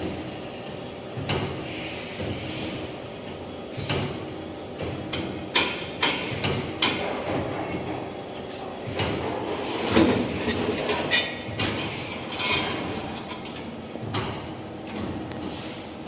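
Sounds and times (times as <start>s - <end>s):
metal knocks and rattling: 8.9s - 15.2s.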